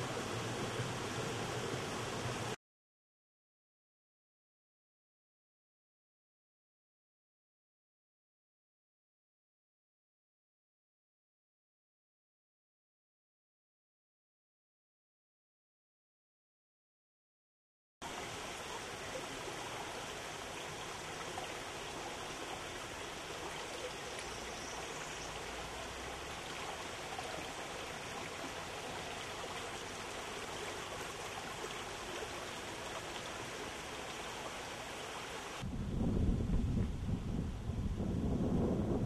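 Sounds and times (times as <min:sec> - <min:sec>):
brook flowing over rocks: 0:00.0 - 0:02.6, 0:18.0 - 0:35.6.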